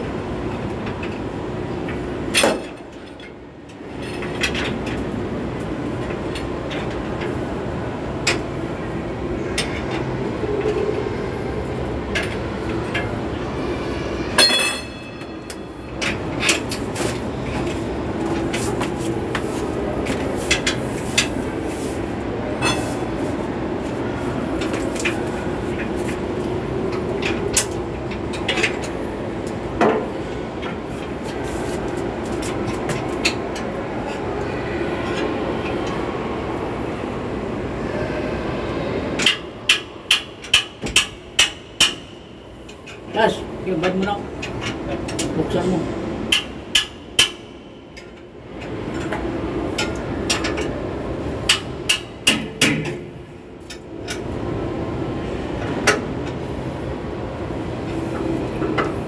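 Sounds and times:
ringing metallic clang: 14.4s - 15.4s.

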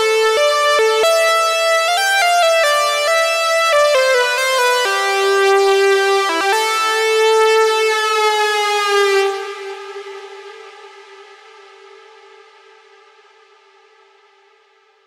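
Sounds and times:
buzzy synthesizer melody: 0.0s - 10.9s.

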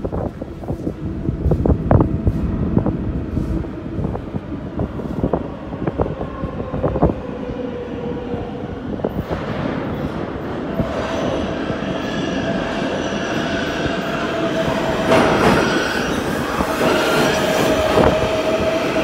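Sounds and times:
subway train rumble: 0.0s - 19.0s.

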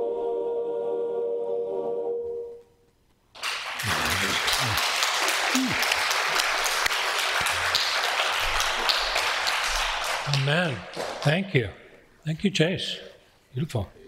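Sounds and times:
congregation applauding: 3.3s - 11.5s.

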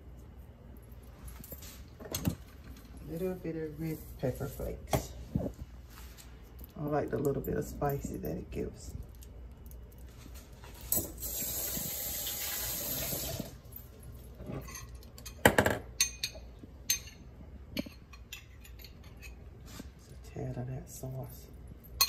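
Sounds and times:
running water: 11.0s - 13.6s.

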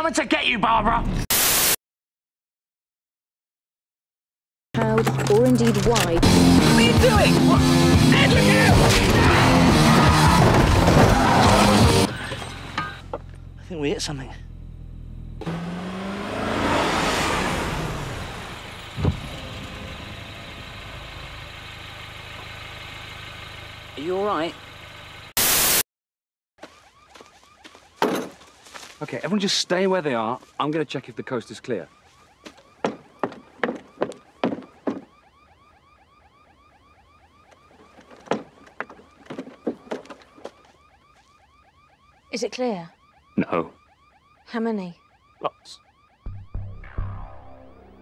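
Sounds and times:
car engine slowing: 5.0s - 25.4s
faint car alarm warbling: 6.2s - 21.7s, 26.6s - 48.0s
sharp low thump: 19.0s - 19.4s.

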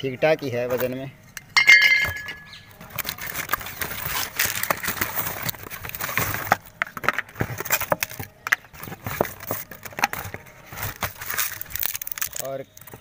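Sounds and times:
cardboard box scraping and rustling: 2.8s - 12.4s.

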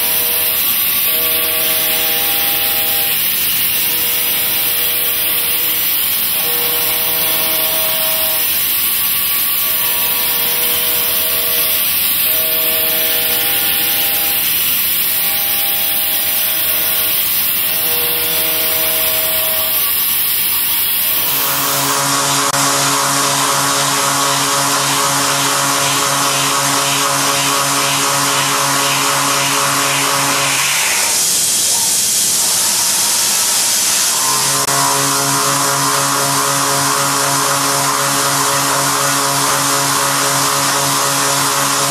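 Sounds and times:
milling cutter cutting metal: 0.0s - 22.7s.

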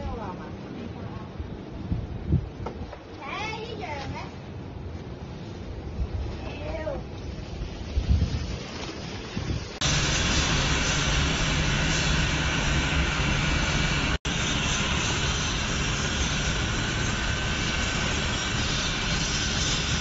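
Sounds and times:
low droning hum: 9.7s - 20.0s
loud machine roar: 9.8s - 20.0s.

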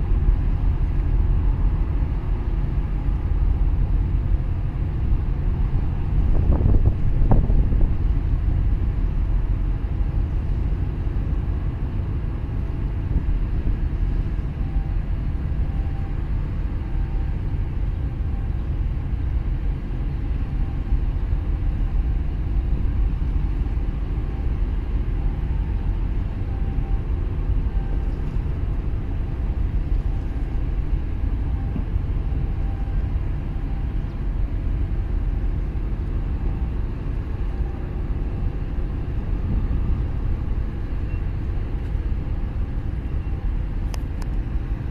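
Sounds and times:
wind buffeting microphone: 0.0s - 14.2s, 36.8s - 44.9s
faint machinery hum: 0.0s - 44.9s.

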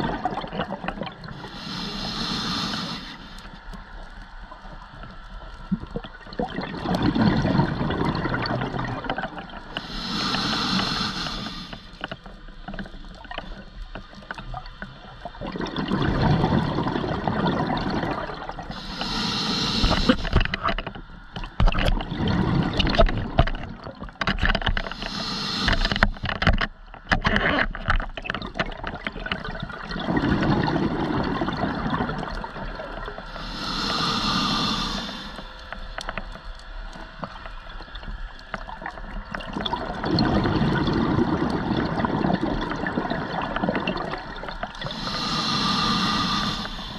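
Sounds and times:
exhaled bubbles gurgling: 0.0s - 11.8s, 12.9s - 20.8s, 21.5s - 26.3s, 28.2s - 35.6s, 37.2s - 46.9s
regulator inhale hiss: 1.3s - 3.7s, 9.7s - 12.1s, 18.7s - 20.6s, 24.8s - 26.4s, 33.3s - 36.0s, 44.8s - 46.9s
small clicks: 35.0s - 39.8s.

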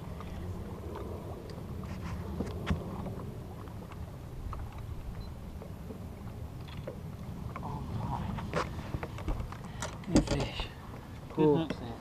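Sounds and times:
water around a boat: 0.0s - 12.0s
wind: 0.0s - 12.0s
light clicks and knocks: 8.3s - 11.9s.

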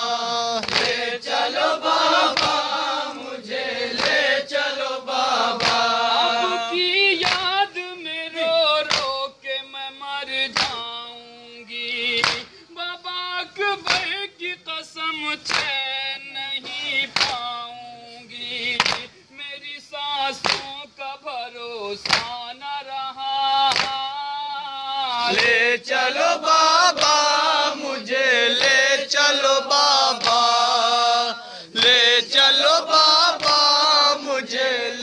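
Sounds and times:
men chanting in chorus: 0.0s - 35.0s
chest-beating slaps: 0.6s - 1.0s, 2.3s - 2.6s, 3.9s - 4.2s, 5.6s - 5.9s, 7.2s - 7.5s, 10.6s - 10.8s, 12.2s - 12.5s, 13.9s - 14.1s, 22.0s - 22.4s, 30.2s - 30.5s, 33.4s - 33.7s.

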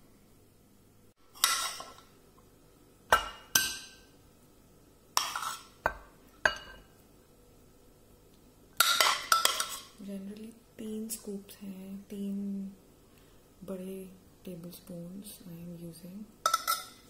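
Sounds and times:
metal spoon clinking on pot: 8.8s - 9.9s, 16.4s - 17.0s.

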